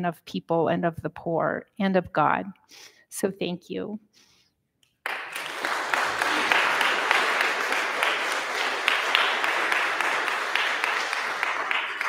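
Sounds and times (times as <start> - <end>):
audience applauding: 5.0 - 12.0.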